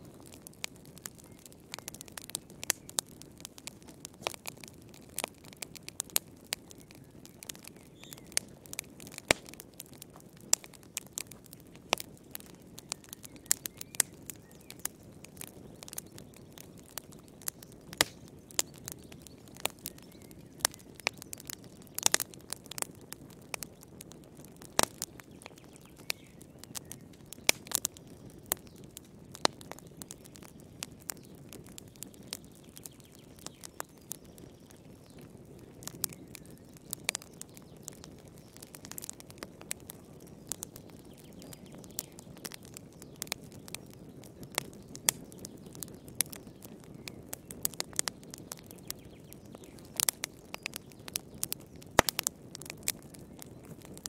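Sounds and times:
wood fire crackling: 0:00.0 - 0:54.0.

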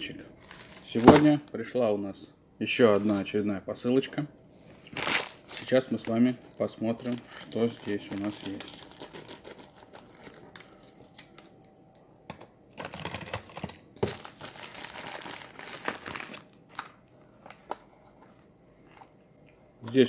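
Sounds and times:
envelope crinkling and rustling: 0:00.4 - 0:01.2, 0:04.8 - 0:11.6, 0:12.8 - 0:19.1.

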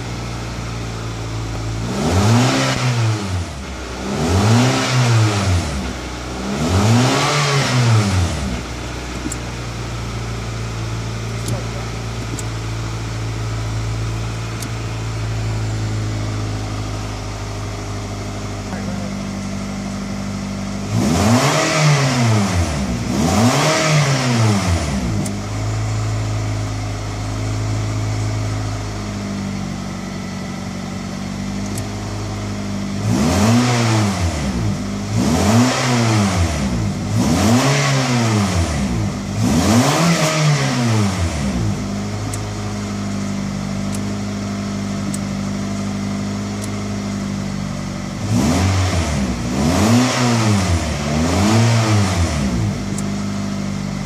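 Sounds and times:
car engine idling: 0:00.0 - 0:02.4, 0:03.0 - 0:21.4, 0:24.4 - 0:33.1, 0:40.8 - 0:48.4, 0:50.8 - 0:54.0.

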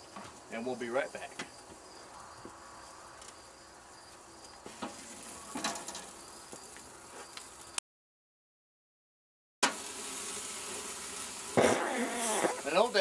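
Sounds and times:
insects chirping: 0:00.0 - 0:07.8.

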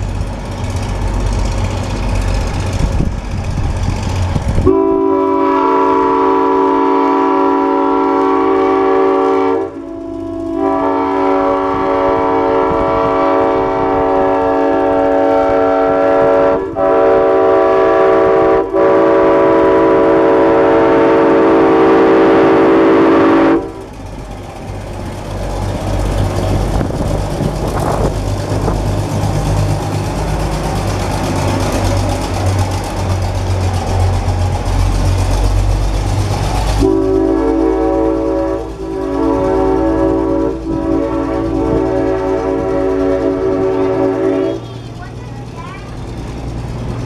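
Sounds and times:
diesel engine rumbling: 0:00.0 - 0:47.0
locomotive air horn: 0:04.6 - 0:23.9, 0:36.8 - 0:44.8.

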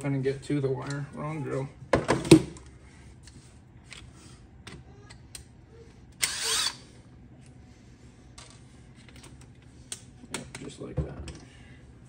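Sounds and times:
cordless drill motor whine: 0:06.2 - 0:06.9.

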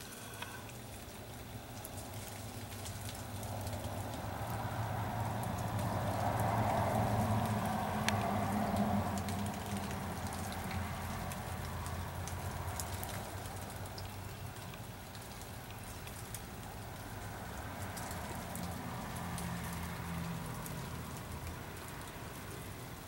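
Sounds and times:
outdoor noise: 0:00.0 - 0:23.0
light ticks and patter: 0:00.4 - 0:23.0.

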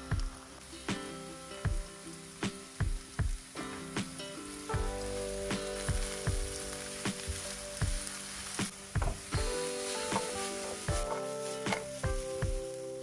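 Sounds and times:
background music with steady beat: 0:00.0 - 0:13.0
onions sizzling in oil: 0:00.0 - 0:13.0
wooden spatula stirring: 0:05.8 - 0:12.7.

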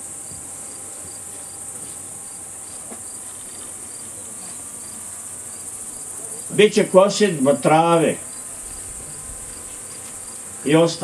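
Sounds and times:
insects high-pitched hiss: 0:00.0 - 0:11.0
short insect chirp: 0:08.2 - 0:10.6.

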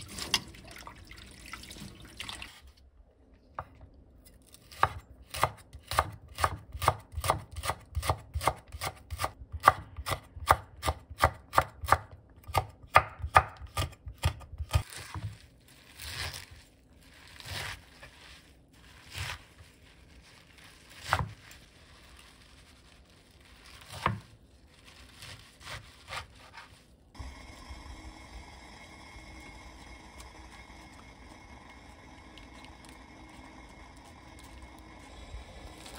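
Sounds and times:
knife cutting wet leaves: 0:18.9 - 0:22.5, 0:23.6 - 0:26.8
knife slicing on wooden board: 0:25.2 - 0:26.7.

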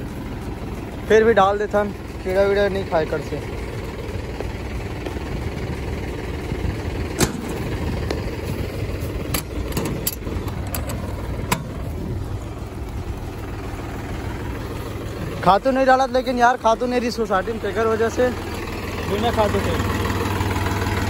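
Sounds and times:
tractor engine idling: 0:00.0 - 0:21.0.

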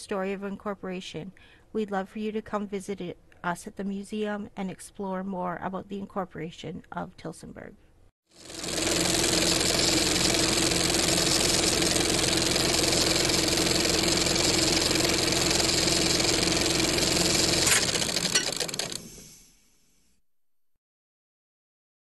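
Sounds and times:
low hum: 0:08.4 - 0:19.3
film projector whirring: 0:08.4 - 0:19.4.

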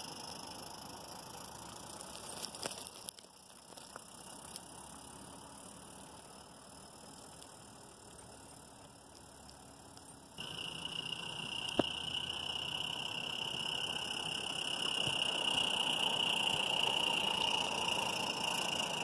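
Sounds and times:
sharp clicks: 0:09.2 - 0:19.0
model train rolling past: 0:10.4 - 0:19.0.

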